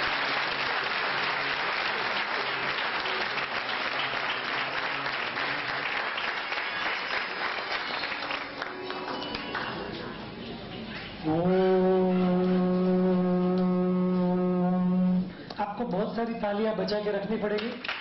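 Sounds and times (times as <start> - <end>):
audience applause: 0.0 - 10.0.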